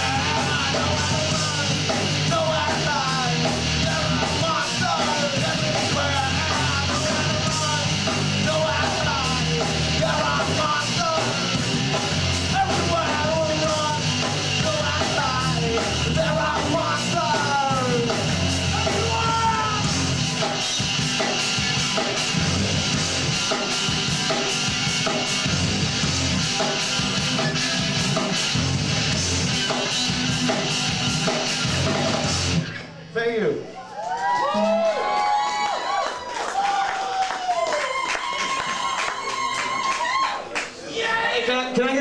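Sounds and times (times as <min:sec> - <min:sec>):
person singing: 0:00.0 - 0:11.6, 0:12.4 - 0:19.9
live rock band playing: 0:00.0 - 0:35.2.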